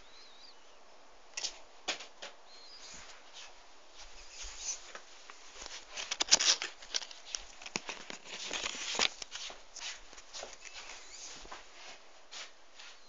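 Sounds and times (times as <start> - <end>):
phone being handled: 5.6 - 11.2.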